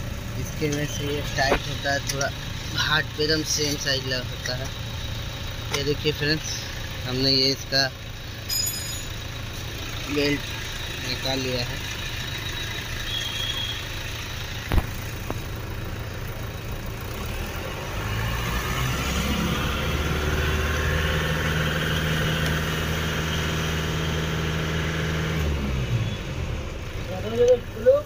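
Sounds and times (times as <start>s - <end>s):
engine humming: 0.0s - 28.0s
metal clink: 8.4s - 9.2s.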